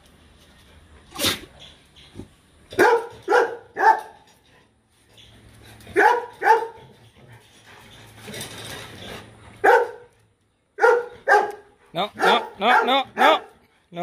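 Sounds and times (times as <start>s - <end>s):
dog barking: 2.8s - 4.2s, 6.0s - 6.8s, 9.6s - 10.1s, 10.8s - 13.6s.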